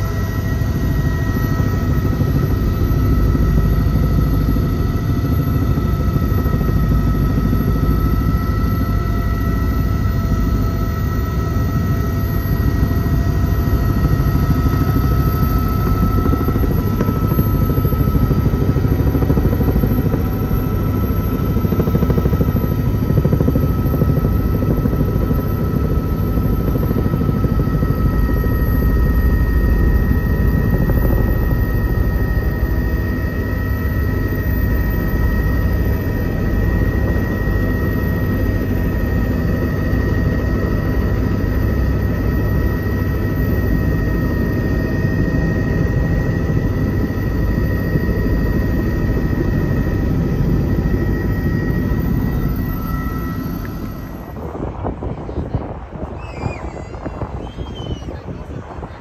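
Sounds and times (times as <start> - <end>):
helicopter rotor and engine rumble: 0.0 - 59.0
high whining tones: 42.7 - 54.6.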